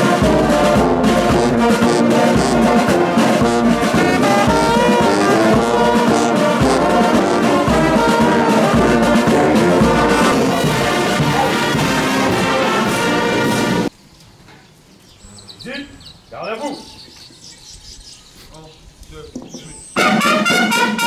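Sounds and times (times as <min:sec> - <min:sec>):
bass drum beating: 0:00.0 - 0:12.6
brass band playing in harmony: 0:00.0 - 0:13.9, 0:20.0 - 0:21.0.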